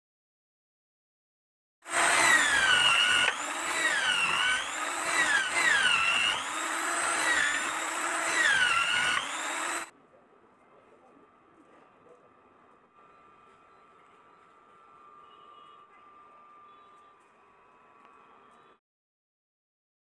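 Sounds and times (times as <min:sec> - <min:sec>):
electric drill boring wood: 0:01.9 - 0:09.9.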